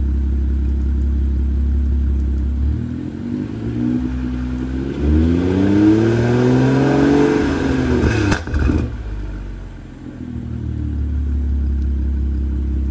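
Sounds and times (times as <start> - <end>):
car engine revving: 2.4 - 12.9
sharp exhaust crack: 7.4 - 9.1.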